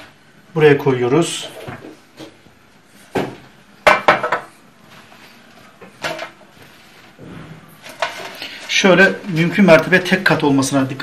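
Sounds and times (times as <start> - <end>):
metal baking trays clattering: 7.1 - 10.8.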